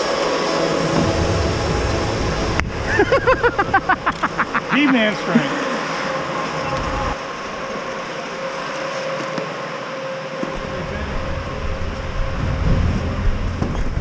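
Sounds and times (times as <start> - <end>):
ice rink hum: 0.0 - 14.0
low rumble with knocks: 0.8 - 4.1, 10.5 - 14.0.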